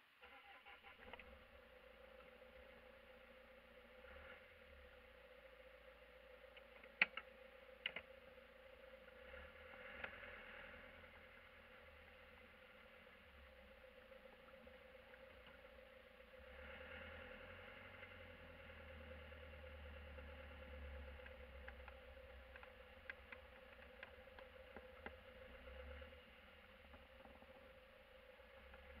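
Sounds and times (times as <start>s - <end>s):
van engine and road rumble: 0.0s - 29.0s.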